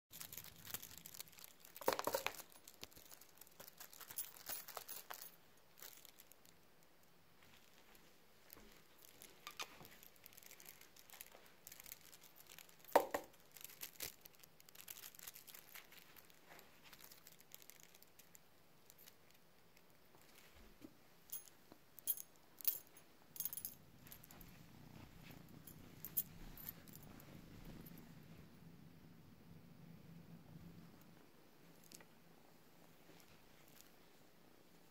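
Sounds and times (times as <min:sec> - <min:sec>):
cat playing with toy: 0:00.2 - 0:06.1.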